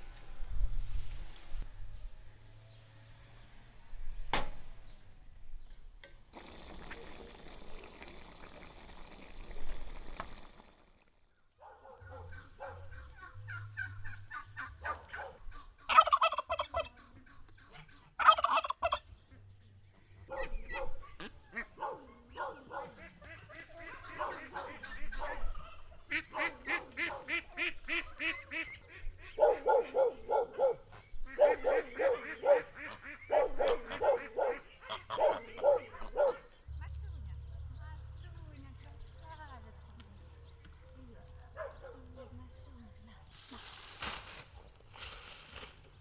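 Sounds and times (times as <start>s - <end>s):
poultry calling: 12.0s - 19.5s, 20.2s - 39.2s.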